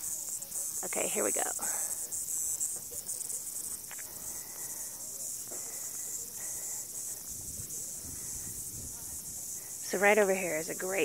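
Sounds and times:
cicadas singing: 0.0s - 11.0s.

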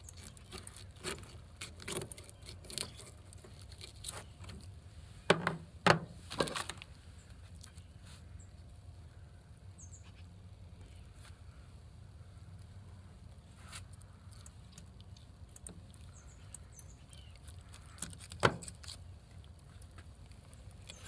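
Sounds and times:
knife scraping fish: 0.0s - 4.3s
low steady rumble: 0.0s - 21.0s.

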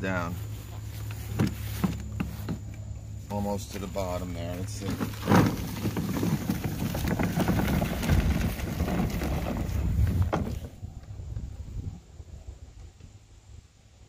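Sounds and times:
lawn mower running: 0.4s - 10.7s
wind buffeting microphone: 6.7s - 13.2s.

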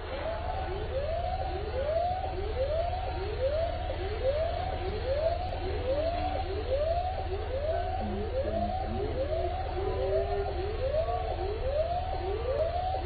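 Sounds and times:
emergency vehicle siren wailing: 0.0s - 13.0s
steady low rumble: 8.0s - 9.4s.

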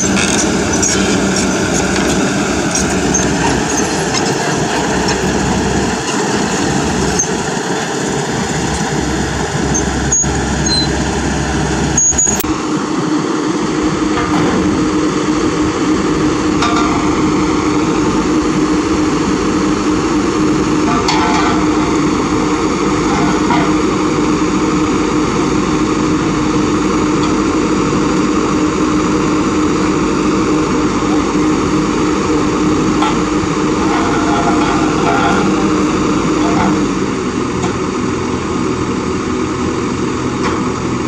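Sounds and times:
excavator diesel engine idling: 0.0s - 41.0s
metal knocks and clanks: 14.1s - 15.1s, 16.4s - 24.4s, 31.1s - 37.0s.

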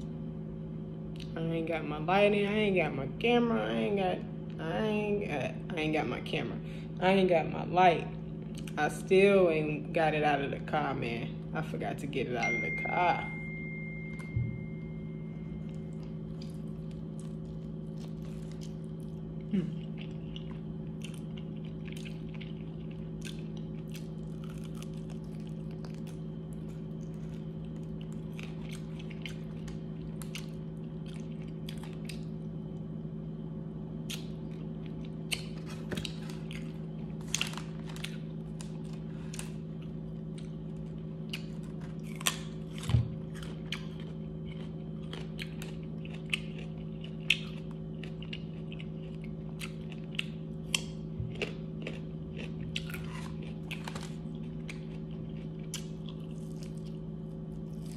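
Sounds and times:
low hum: 0.0s - 57.9s
person eating crunchy food: 15.2s - 33.2s, 34.0s - 57.9s.

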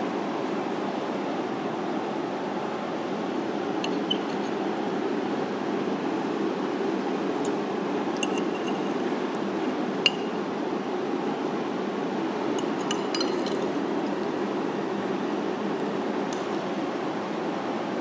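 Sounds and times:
steady background noise: 0.0s - 18.0s
fork clinking on plate: 8.2s - 9.0s, 10.1s - 10.4s, 12.6s - 13.7s.

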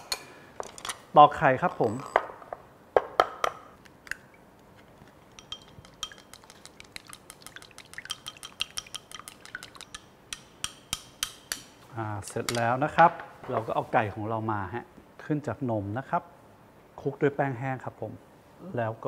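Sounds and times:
egg cracking on glass bowl: 5.2s - 11.7s
chopsticks clicking against glass: 5.3s - 11.7s.

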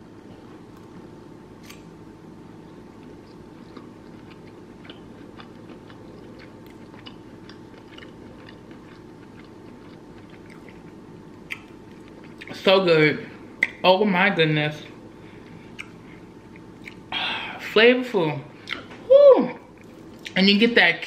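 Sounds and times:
low background hum: 0.0s - 21.0s
person chewing food: 2.6s - 12.6s, 15.4s - 17.1s, 18.6s - 19.0s, 19.6s - 20.4s.

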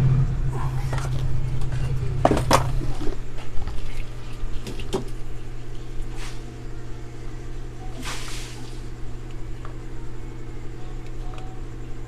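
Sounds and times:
low hum: 0.0s - 12.0s
soft hiss: 7.8s - 9.0s.

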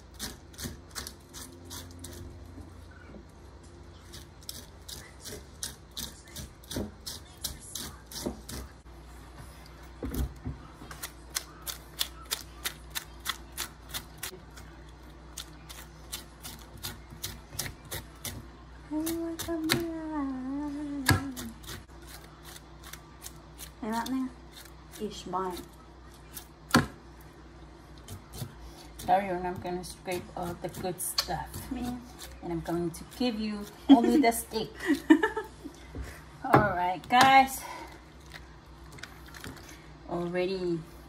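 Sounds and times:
fork scraping pineapple: 0.1s - 2.5s, 28.0s - 34.5s.

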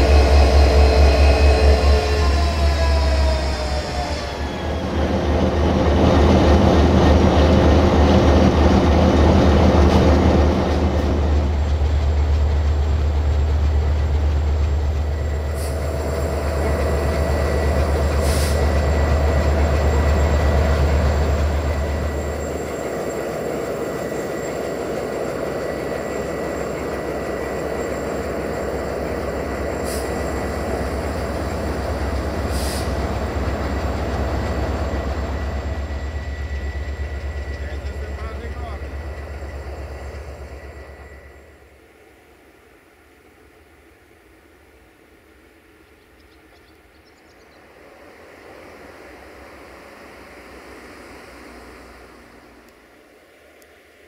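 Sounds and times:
locomotive engine drone: 0.0s - 54.0s
thin whine: 14.8s - 42.1s.

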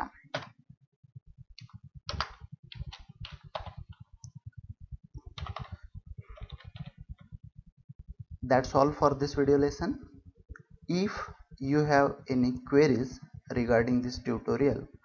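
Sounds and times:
fast low pulsing: 0.0s - 15.0s
keyboard keys clicking: 1.6s - 4.4s, 5.2s - 7.3s.

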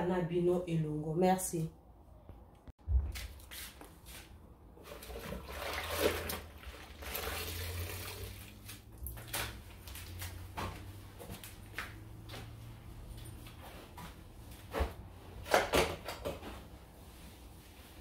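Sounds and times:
mop swishing across floor: 3.0s - 5.4s, 16.5s - 18.0s.

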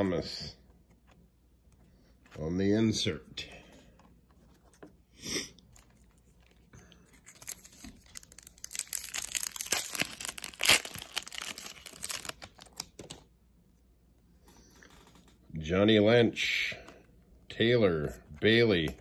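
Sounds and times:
card pack wrapper tearing: 7.1s - 13.2s.

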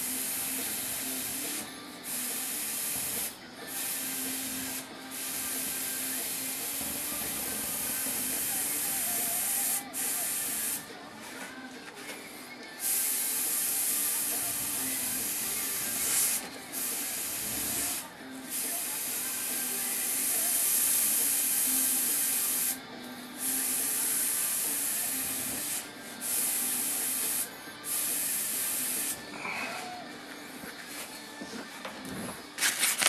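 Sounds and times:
airbrush hissing: 0.0s - 10.8s, 12.8s - 22.8s, 23.4s - 29.2s.

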